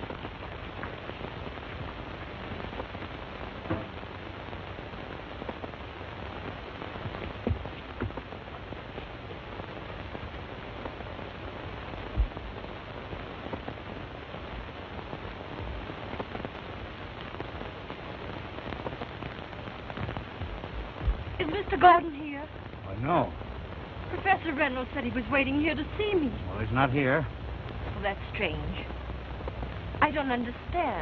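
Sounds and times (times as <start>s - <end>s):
loud pops: 0.0s - 21.9s
film soundtrack hiss and crackle: 0.0s - 31.0s.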